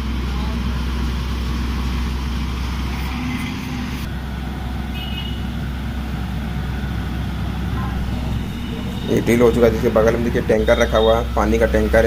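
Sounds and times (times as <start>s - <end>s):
drilling rig engine droning: 0.0s - 12.0s.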